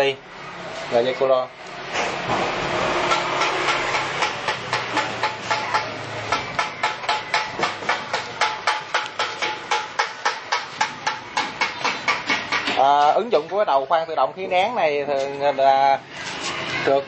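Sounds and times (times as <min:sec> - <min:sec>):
metallic knocking: 0:02.3 - 0:13.0.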